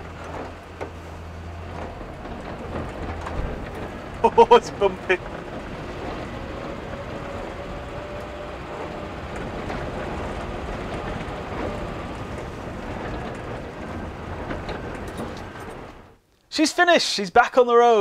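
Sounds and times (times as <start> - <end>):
car body knocks and rattles: 0.0 - 8.1
car engine rumble: 0.0 - 16.3
road noise: 0.0 - 16.6.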